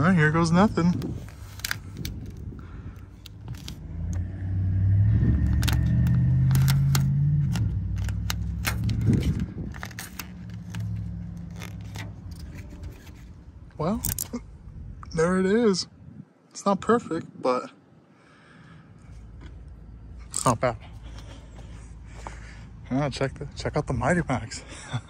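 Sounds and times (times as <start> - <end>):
vehicle engine humming: 0.0 - 14.3
vinyl film crinkling: 0.6 - 3.8, 5.4 - 13.4.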